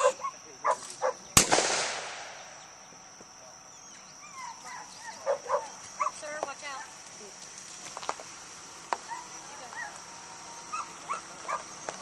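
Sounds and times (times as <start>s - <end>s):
gunshot echoing: 1.4s - 2.6s.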